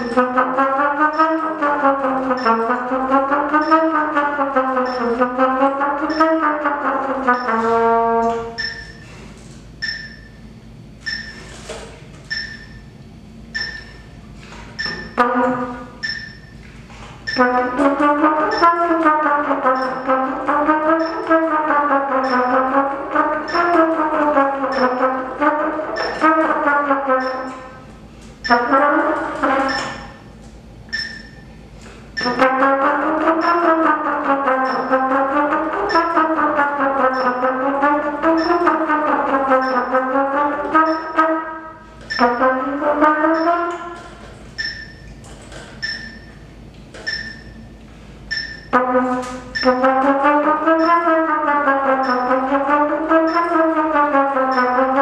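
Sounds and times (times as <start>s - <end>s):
trumpet playing lip slurs: 0.0s - 9.2s, 14.4s - 16.0s, 16.9s - 30.4s, 31.8s - 44.4s, 48.7s - 55.0s.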